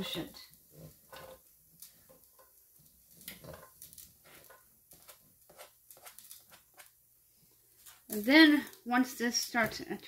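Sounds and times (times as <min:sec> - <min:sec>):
scraping on cutting board: 0:03.3 - 0:06.9.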